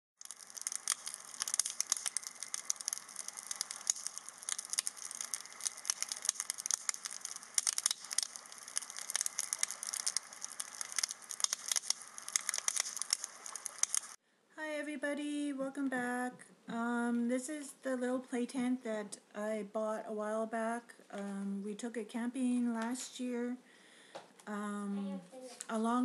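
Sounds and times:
crackling and crinkling: 0.2 - 14.2.

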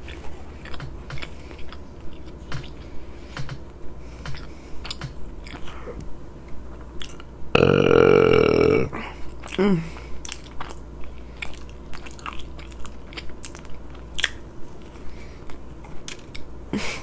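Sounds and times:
woman chewing: 0.0 - 3.6, 4.2 - 7.4, 8.9 - 16.6
loud burp: 7.5 - 9.0.

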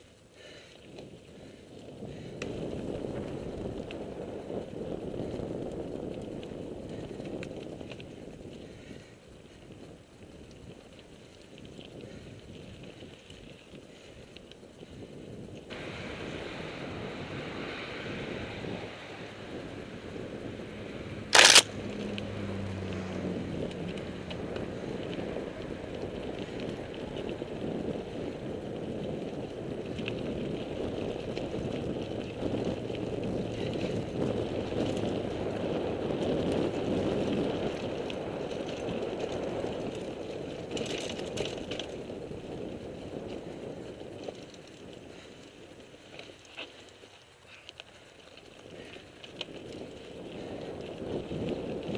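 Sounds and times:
bike tyres rumbling on gravel: 0.0 - 51.9
clicks: 21.3 - 21.7.

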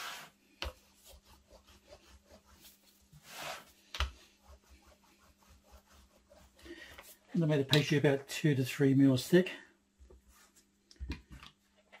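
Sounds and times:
rolling pin swishing on dough: 0.0 - 7.5.

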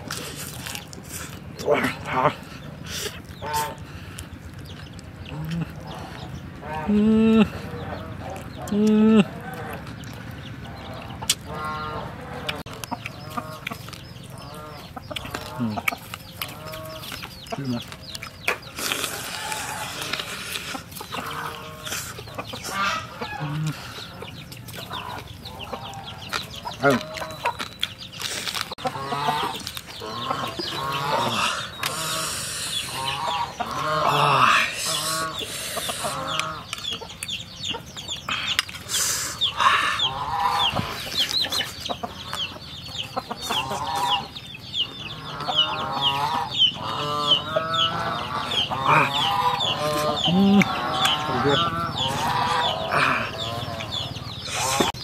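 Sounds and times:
close-up chewing and biting: 0.0 - 6.5, 12.4 - 23.8, 24.4 - 34.0, 34.8 - 39.4
chickens clucking: 0.0 - 55.0.

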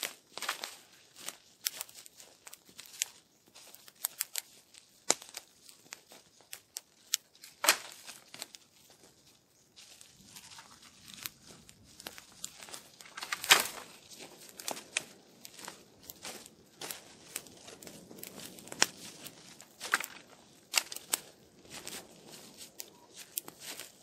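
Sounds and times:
tent fabric rustling: 0.0 - 24.0
sharp fabric crackles: 9.8 - 24.0.

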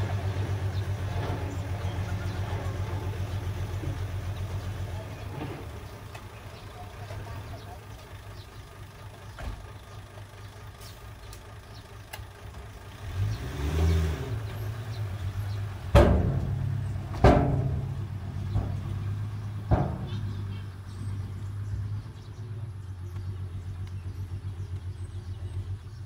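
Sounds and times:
truck engine revving: 0.0 - 26.0
tipper body banging down: 15.9 - 21.1.

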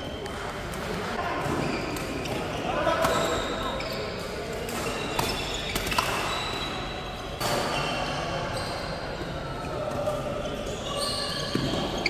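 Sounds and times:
sneakers squeaking on court floor: 0.0 - 12.0
racket hitting shuttlecock: 4.6 - 6.4.

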